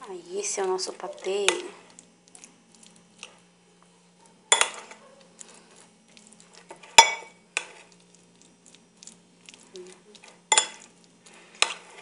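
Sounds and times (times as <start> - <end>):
spoon clinking on bowl: 4.5 - 5.0
spoon scraping a bowl: 4.5 - 12.0.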